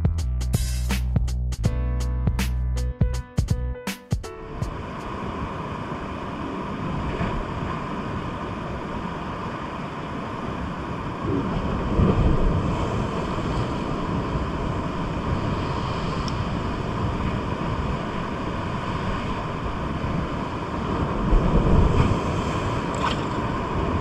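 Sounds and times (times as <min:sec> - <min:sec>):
sea waves washing in: 0:04.3 - 0:24.0
wind buffeting microphone: 0:10.4 - 0:24.0.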